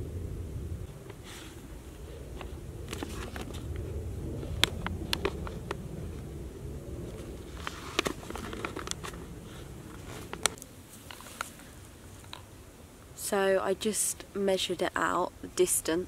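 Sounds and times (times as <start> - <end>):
low steady rumble: 0.0 - 16.0
paper map crinkling: 2.4 - 3.8, 7.1 - 12.4.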